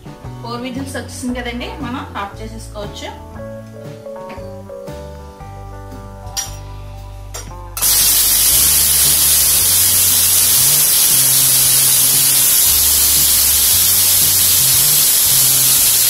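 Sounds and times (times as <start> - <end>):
pressure cooker steam hissing: 7.8 - 16.0.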